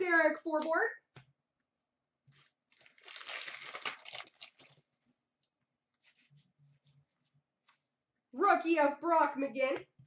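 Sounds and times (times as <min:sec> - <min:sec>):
trading cards rustling: 0:02.3 - 0:04.8.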